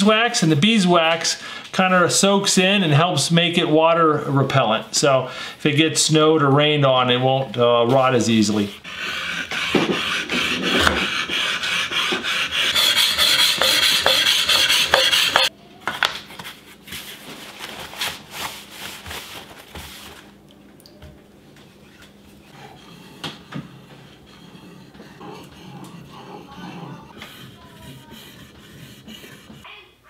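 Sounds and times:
scraping on whetstone: 0:08.6 - 0:15.5, 0:21.9 - 0:29.7.

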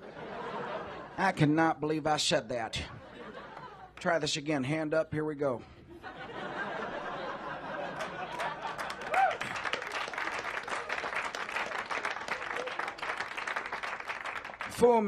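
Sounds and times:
audience applauding: 0:07.9 - 0:14.8.

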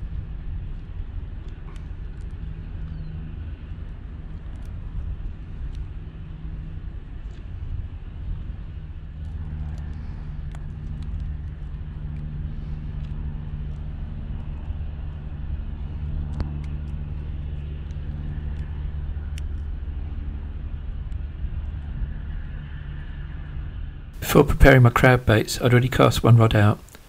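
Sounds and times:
faint clicks: 0:01.4 - 0:03.1, 0:03.8 - 0:05.9, 0:07.2 - 0:07.5, 0:09.2 - 0:13.8, 0:14.4 - 0:20.2.

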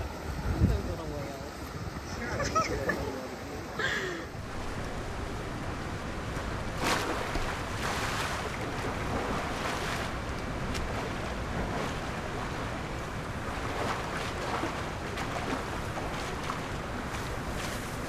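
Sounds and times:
elephant splashing in water: 0:04.4 - 0:18.0.

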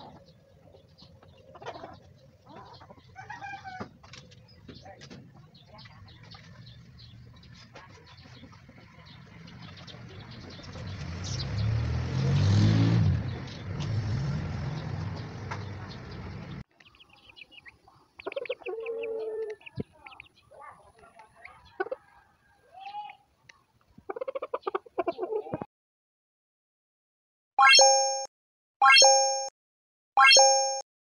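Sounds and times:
hens clucking: 0:00.0 - 0:10.6, 0:17.2 - 0:22.2, 0:23.5 - 0:25.7.

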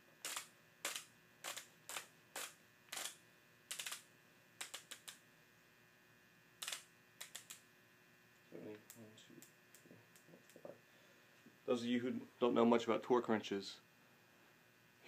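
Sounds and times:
torque wrench clicking: 0:00.2 - 0:04.0, 0:04.6 - 0:05.2, 0:06.6 - 0:07.6.

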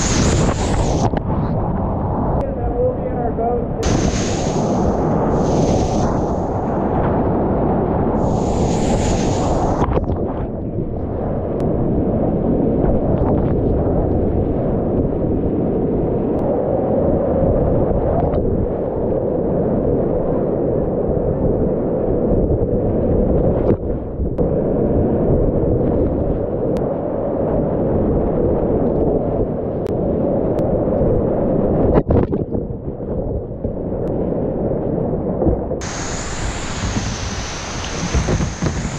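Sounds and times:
spray splashing: 0:00.0 - 0:01.1, 0:03.8 - 0:06.8, 0:08.2 - 0:09.9, 0:35.8 - 0:38.9
whitewater rapids rushing: 0:35.8 - 0:38.9.

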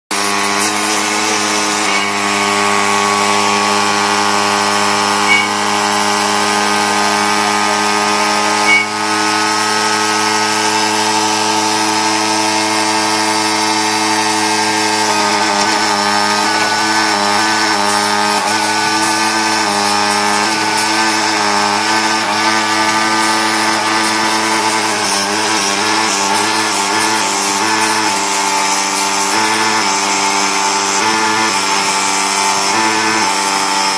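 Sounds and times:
key-cutting machine humming: 0:00.1 - 0:33.9.

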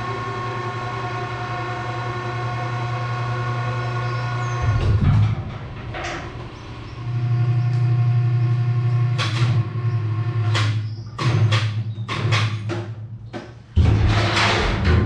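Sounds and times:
electric hoist motor humming: 0:00.0 - 0:11.6.

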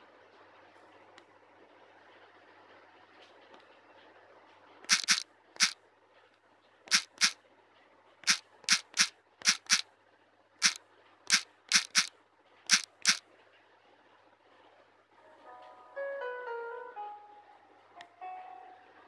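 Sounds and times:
smartphone keyboard clicks: 0:04.9 - 0:05.8, 0:06.9 - 0:07.4, 0:08.2 - 0:09.8, 0:10.6 - 0:12.1, 0:12.7 - 0:13.2.

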